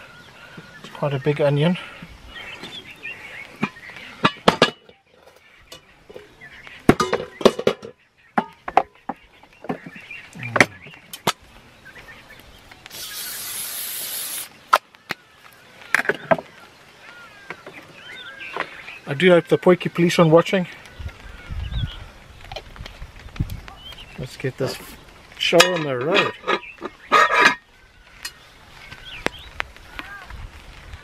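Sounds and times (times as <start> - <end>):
aerosol spray can hissing: 12.9 - 14.5.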